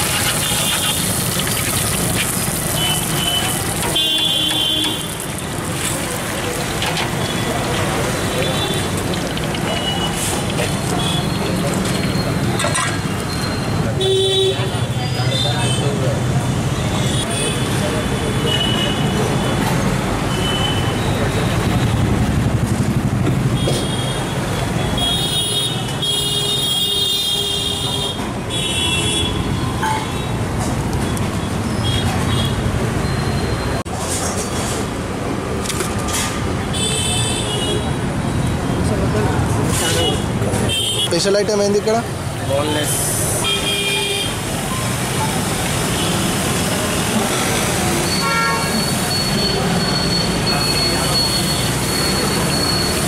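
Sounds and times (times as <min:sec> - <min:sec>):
traffic engines rumbling: 0:00.0 - 0:53.0
vehicle horns honking: 0:02.8 - 0:05.1, 0:48.1 - 0:49.4
vehicle horn honking: 0:48.2 - 0:48.8.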